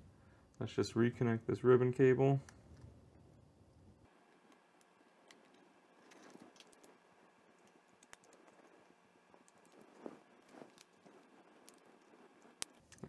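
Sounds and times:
small clicks and taps: 0:07.6 - 0:08.8.

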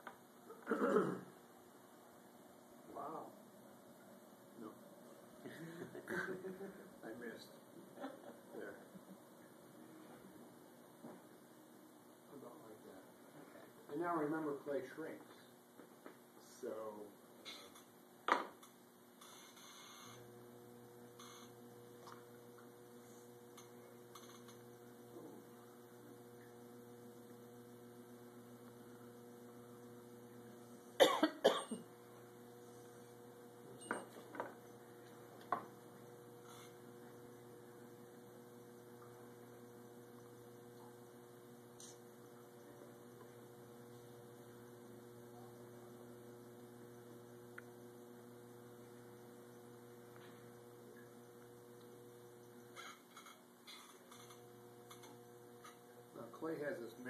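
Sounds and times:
person coughing: 0:00.5 - 0:01.3, 0:31.0 - 0:31.9
potter's wheel motor humming: 0:18.6 - 0:57.0.

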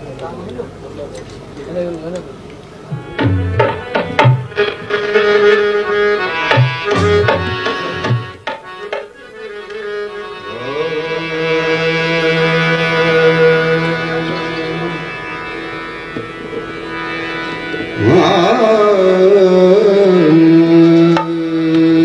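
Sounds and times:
harmonium chords: 0:02.8 - 0:22.0
tabla strokes: 0:02.9 - 0:09.2, 0:20.4 - 0:22.0.

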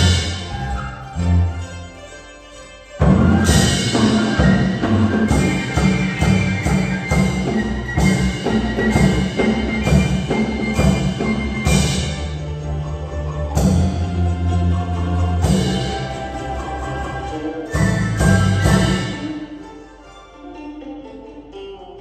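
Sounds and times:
drum and cymbal strokes: 0:00.0 - 0:01.4, 0:03.0 - 0:19.5
plucked lutes: 0:00.0 - 0:22.0.

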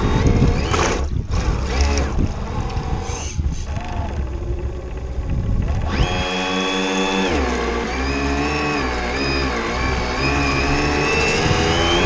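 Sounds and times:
wind buffeting microphone: 0:00.0 - 0:07.2, 0:09.8 - 0:12.0
electric motor whining: 0:00.0 - 0:12.0.

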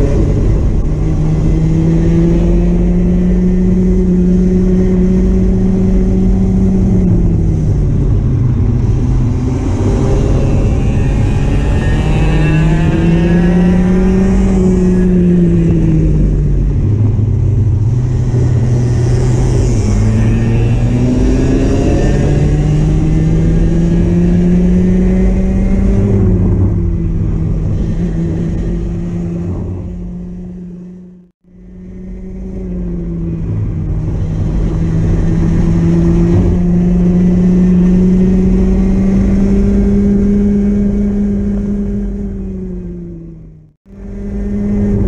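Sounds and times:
racing kart engine: 0:00.0 - 0:45.0.

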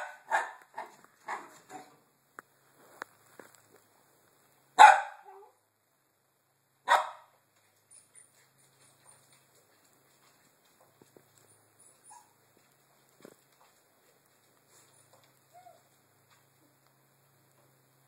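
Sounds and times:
puppy barking: 0:00.0 - 0:01.9, 0:04.8 - 0:05.6, 0:06.9 - 0:07.3.

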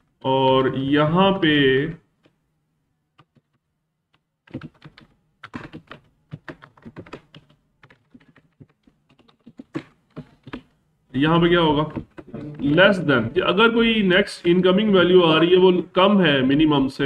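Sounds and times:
computer keyboard typing: 0:03.2 - 0:10.8.

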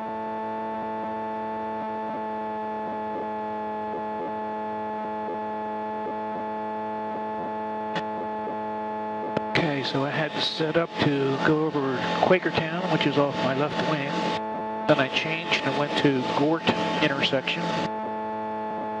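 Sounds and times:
aircraft engine and propeller hum: 0:09.4 - 0:18.0.

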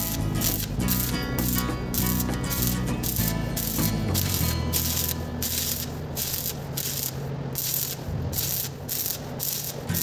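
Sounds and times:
background music: 0:00.0 - 0:05.9
welding arc crackling and sizzling: 0:00.0 - 0:10.0.

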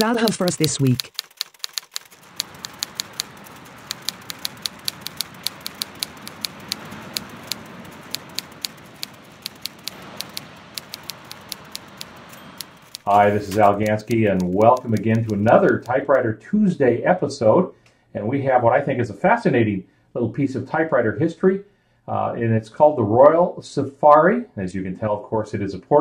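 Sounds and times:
typewriter keys clacking: 0:00.0 - 0:16.1
ocean surf: 0:02.1 - 0:16.2.

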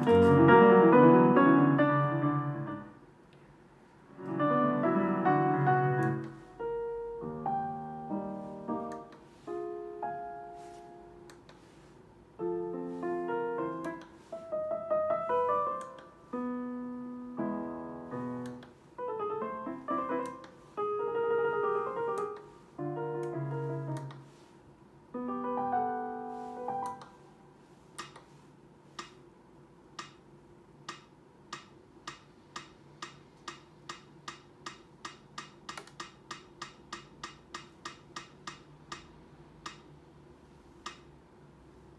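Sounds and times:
digital piano playing chords: 0:00.0 - 0:03.1, 0:04.1 - 0:11.4, 0:12.3 - 0:24.3, 0:25.1 - 0:27.3
metronome ticking: 0:30.9 - 0:39.9.

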